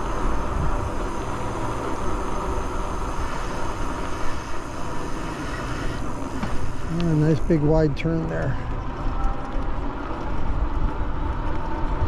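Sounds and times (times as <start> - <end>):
wind rushing over microphone: 0.0 - 8.0.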